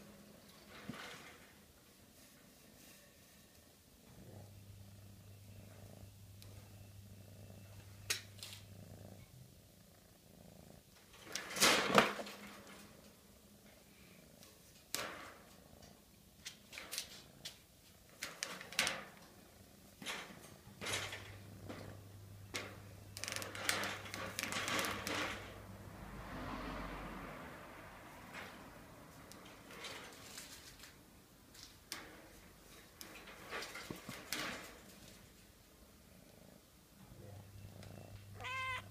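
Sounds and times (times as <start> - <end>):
faint low hum: 0.0 - 11.3, 34.1 - 38.9
rustles and rattles against cage: 0.4 - 4.2, 10.9 - 26.1, 28.0 - 36.0.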